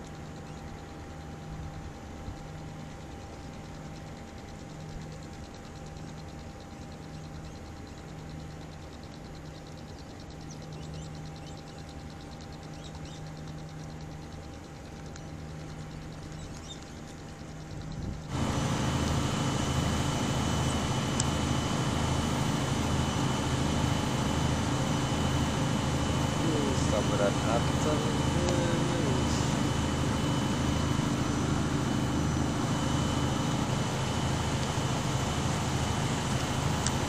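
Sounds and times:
engine running: 14.1 - 37.0.

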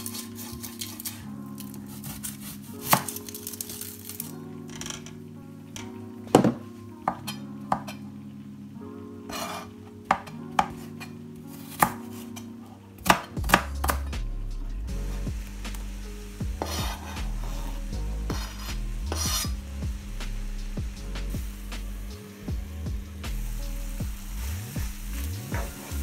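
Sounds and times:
food scraped into frying pan: 9.3 - 9.7, 16.6 - 19.5
knife chopping on plastic board: 11.7 - 12.0, 13.0 - 14.0
low hum: 13.7 - 26.0.

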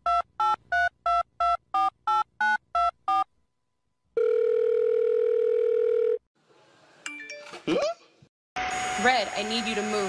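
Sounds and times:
steady phone tone: 4.2 - 6.2.

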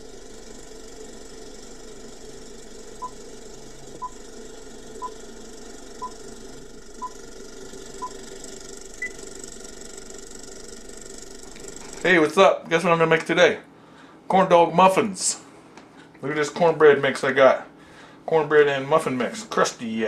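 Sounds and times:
film projector whirr and rattle: 0.0 - 14.2.

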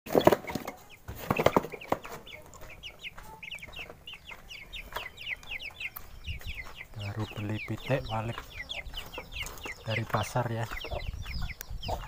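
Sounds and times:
knocks and rustles: 0.1 - 2.3
chicks peeping: 0.1 - 12.0.

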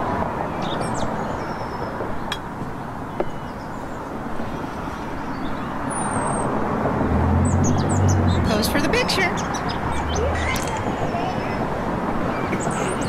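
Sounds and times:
distant road traffic: 0.0 - 13.0
bird chirp: 0.6 - 2.5, 7.4 - 11.5.

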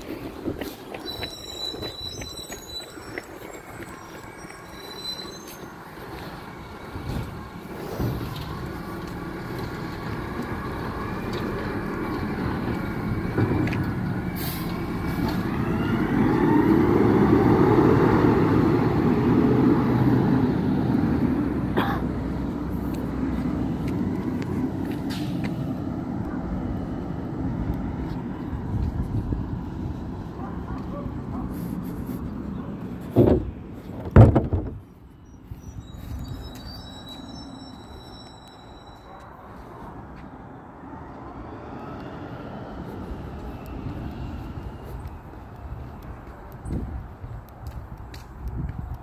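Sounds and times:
garbage truck diesel engine: 0.0 - 35.8.

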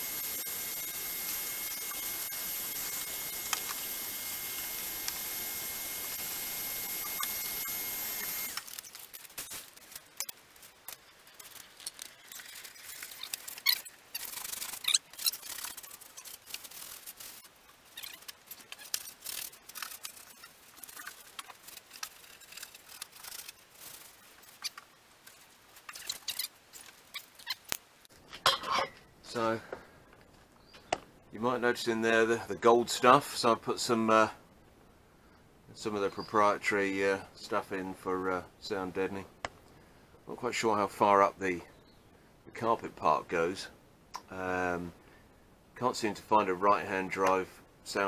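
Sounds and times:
vacuum cleaner running: 0.0 - 8.6.

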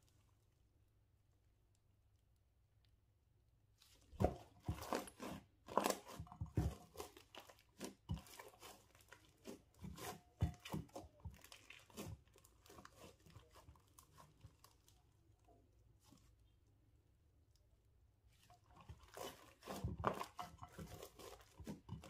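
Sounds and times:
hands squishing slime: 3.8 - 16.5, 18.3 - 22.0
wet crackles and squelches: 3.8 - 16.8, 17.4 - 22.0.

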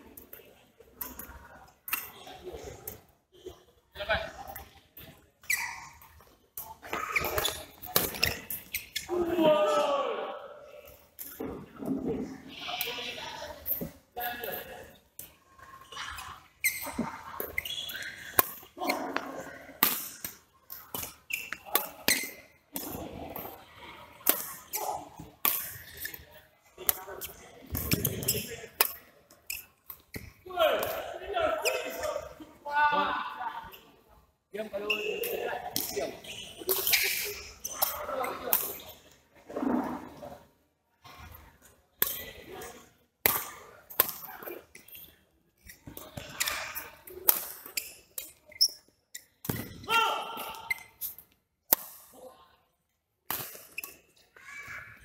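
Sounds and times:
quiet court noise: 0.0 - 55.0
rackets hitting shuttlecock: 6.8 - 9.0, 17.0 - 23.6, 24.2 - 26.2, 43.2 - 48.6, 53.2 - 54.0.

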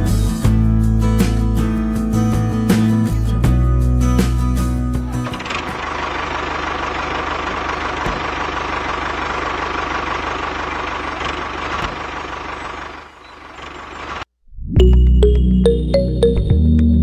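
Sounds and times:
small engine running: 5.1 - 14.2.

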